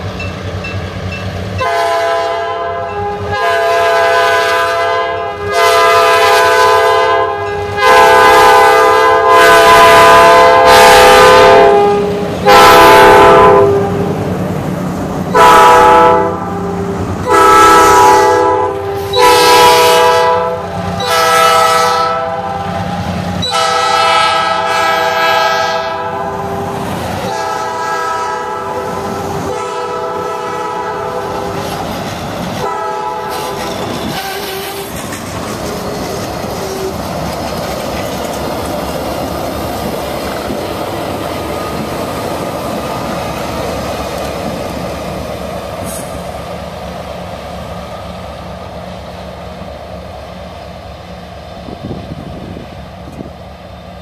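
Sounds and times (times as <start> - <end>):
steady rail noise: 0.0 - 54.0
locomotive air horn blasts: 1.6 - 14.1, 15.3 - 31.6, 32.6 - 34.9
wheels clacking over rail joints: 31.3 - 45.9.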